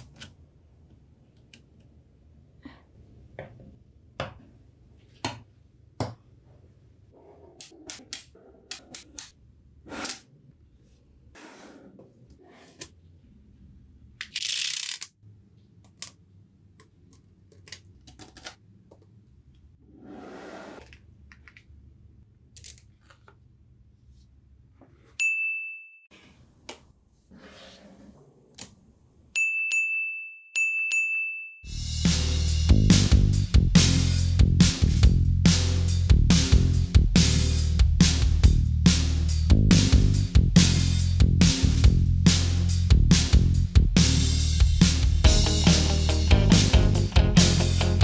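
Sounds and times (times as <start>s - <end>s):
high ringing ding: 25.2s - 26.1s, 29.4s - 31.7s.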